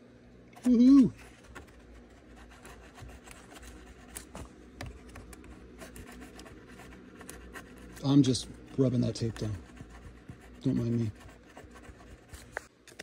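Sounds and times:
fingers rubbing tape: 0:01.3 - 0:08.4.

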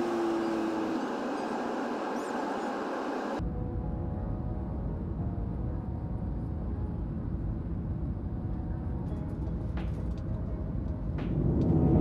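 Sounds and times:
airliner cabin engine noise: 0:00.0 - 0:03.4.

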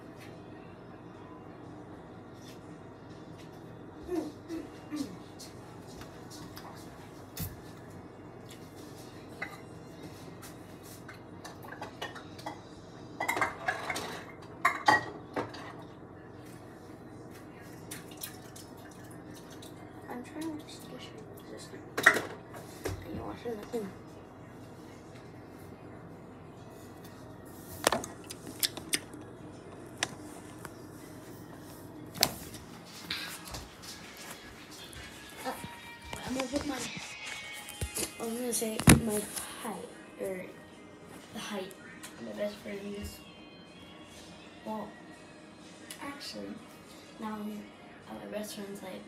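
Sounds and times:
dishes and cutlery clattering: 0:11.4 - 0:15.8, 0:22.0 - 0:22.4.

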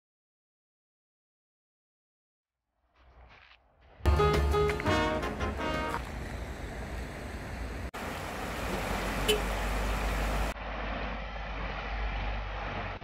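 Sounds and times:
road traffic: 0:04.1 - 0:13.0.

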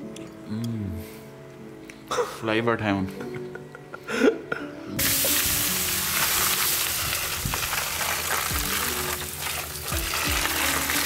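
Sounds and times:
hot charcoal hissing and sizzling: 0:05.0 - 0:11.0
water pouring from watering can: 0:05.0 - 0:11.0.

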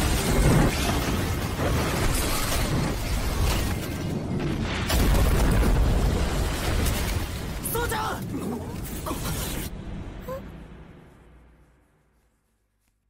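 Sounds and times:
rock crumbling and debris crashing: 0:00.0 - 0:09.0
heavy low rumble: 0:08.6 - 0:12.4.

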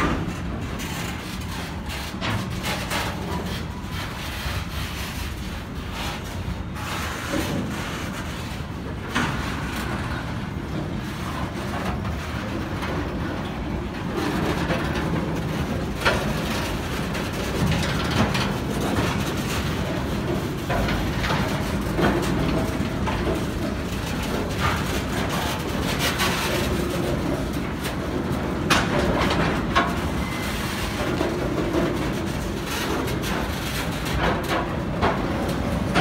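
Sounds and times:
train wheels rumbling on rails: 0:00.0 - 0:36.0.

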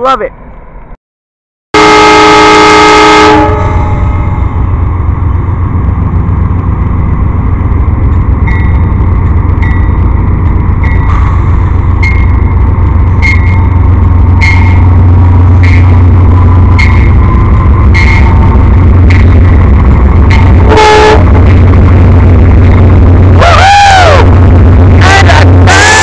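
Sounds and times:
locomotive horn chord: 0:01.8 - 0:04.0, 0:20.5 - 0:21.5
diesel engine droning: 0:02.2 - 0:26.0.

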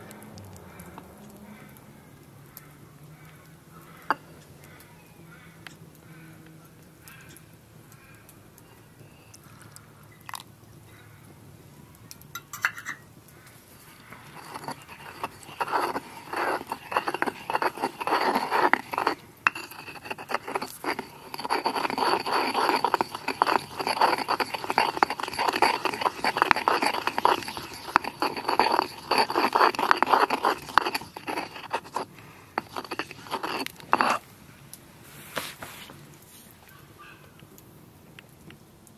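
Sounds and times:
stone pestle scraping in mortar: 0:12.4 - 0:13.0, 0:13.8 - 0:34.3.

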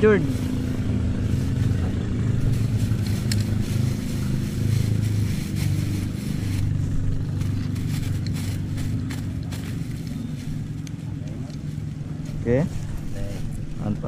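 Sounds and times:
motor engine humming: 0:00.0 - 0:14.0
plastic bag rustling: 0:00.3 - 0:10.8.

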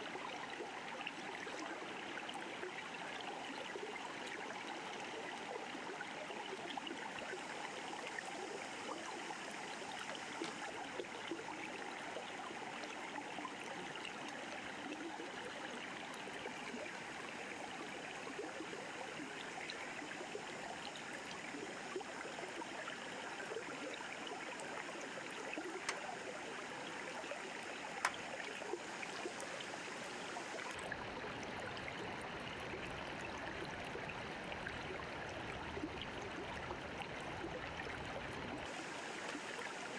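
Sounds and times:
river water rushing: 0:38.7 - 0:39.9.

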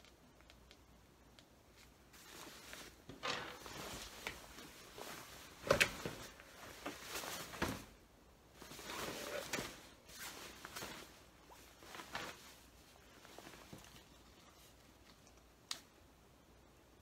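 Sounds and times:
coat fabric rustling: 0:01.7 - 0:14.0.

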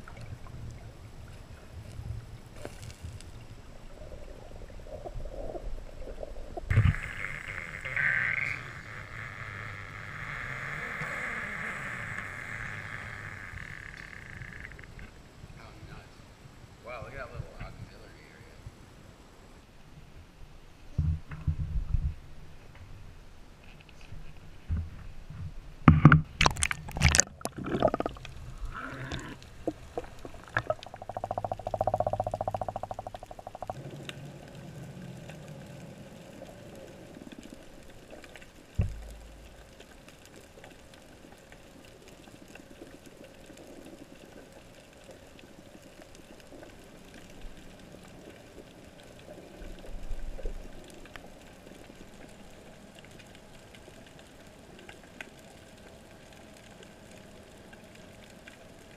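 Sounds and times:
bubbly rumble: 0:00.0 - 0:14.9, 0:26.2 - 0:41.3
faint underwater hiss: 0:00.0 - 0:21.0, 0:26.4 - 0:58.9
churning water: 0:26.4 - 0:36.3
low thumps: 0:38.8 - 0:39.6.

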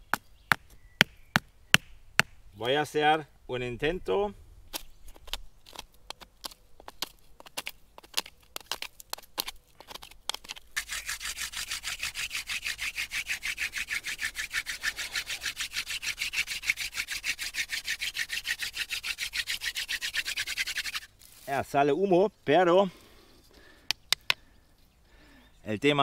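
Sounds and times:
stone scraping wooden stick: 0:04.7 - 0:21.1
wooden spindle rubbing on board: 0:10.8 - 0:21.1.

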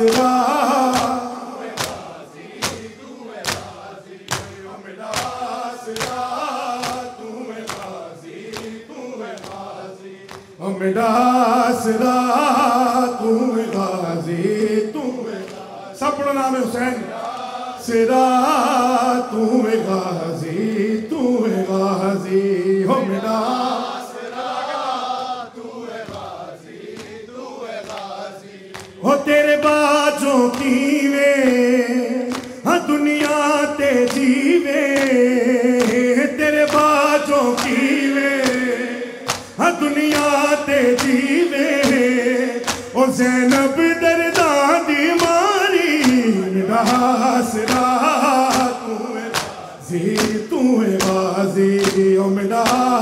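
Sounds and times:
chest beating slaps: 0:00.0 - 0:10.6, 0:26.0 - 0:29.0, 0:32.2 - 0:32.6, 0:33.2 - 0:43.8, 0:45.2 - 0:53.0
man chanting into microphone: 0:00.0 - 0:24.1, 0:27.2 - 0:53.0
chorus of men singing: 0:00.0 - 0:53.0.

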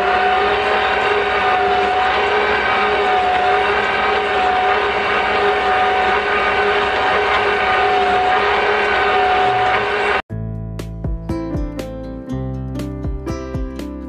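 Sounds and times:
stand mixer motor whining: 0:00.0 - 0:10.2.

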